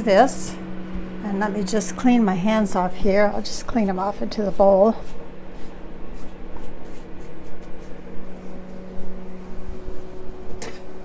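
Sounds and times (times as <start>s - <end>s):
oven humming: 0.0s - 11.0s
hands scraping and rustling: 3.9s - 9.2s.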